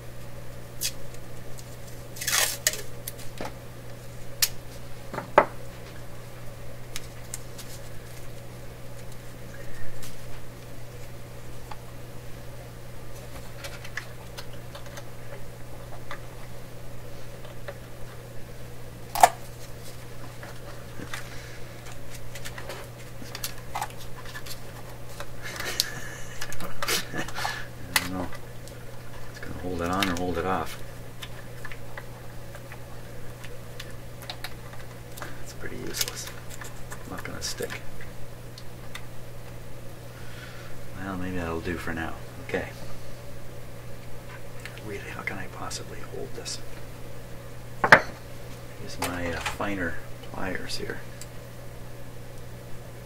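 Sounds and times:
low steady hum: 0.0 - 53.0
tape ripping off roll: 2.2 - 3.3.

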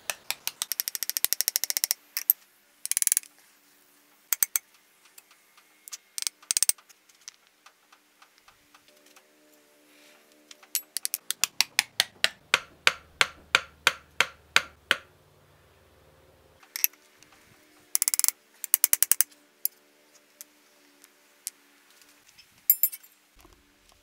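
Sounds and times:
hammer blows on steel: 11.4 - 15.1
metallic clinks: 22.7 - 23.2.

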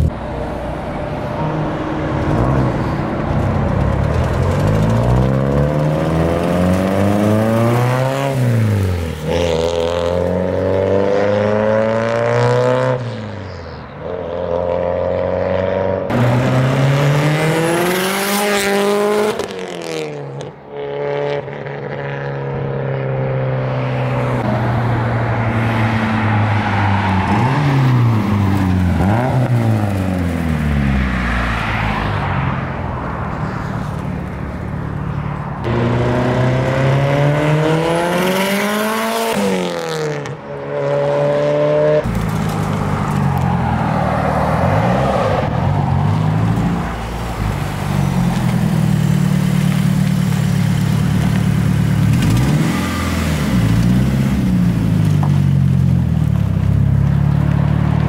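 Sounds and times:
car engine accelerating: 0.0 - 12.9, 15.2 - 20.0, 33.8 - 58.0.

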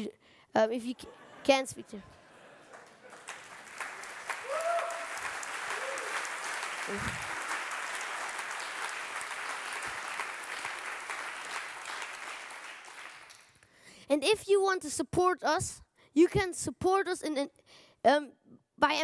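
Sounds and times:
audience applauding: 2.4 - 13.6.

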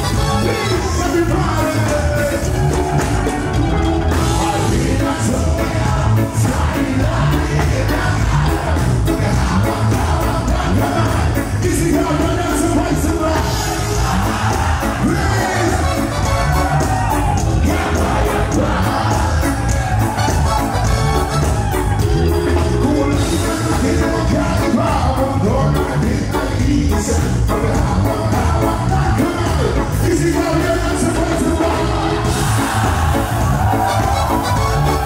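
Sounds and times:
reggae band playing: 0.0 - 35.0
man singing into microphone: 0.1 - 2.7, 10.7 - 13.8, 22.8 - 32.0.

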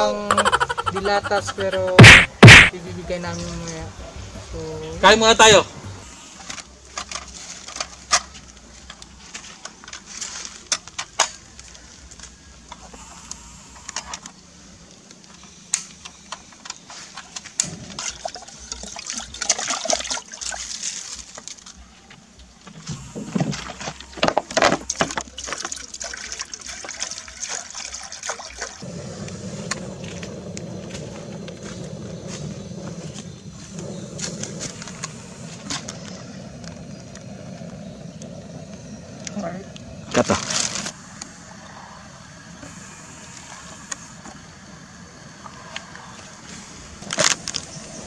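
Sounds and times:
water sloshing in a metal pot: 24.9 - 28.8
gas burner rushing: 28.8 - 48.0.

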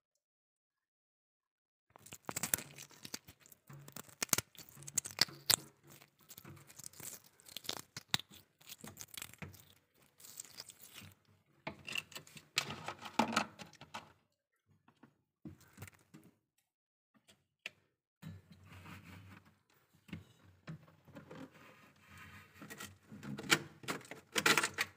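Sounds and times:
frost crunching and crackling: 2.0 - 11.3.

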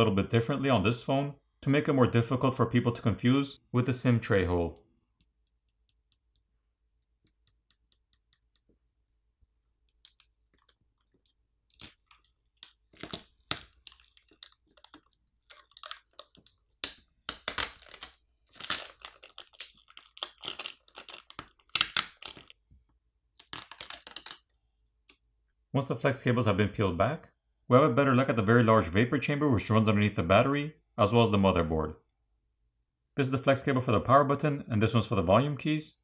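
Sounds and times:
plastic film peeling and crackling: 9.7 - 22.6, 23.3 - 24.5.

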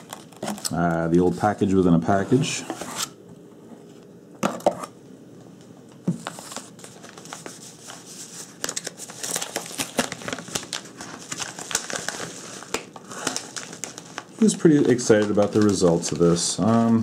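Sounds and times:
paper envelope crinkling and tearing: 0.0 - 1.6, 6.2 - 17.0.

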